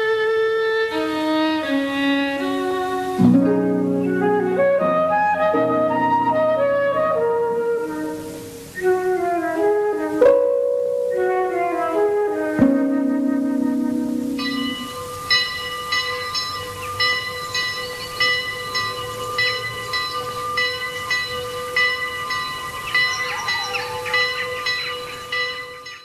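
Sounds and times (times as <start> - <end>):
bell struck repeatedly: 14.2 - 26.0.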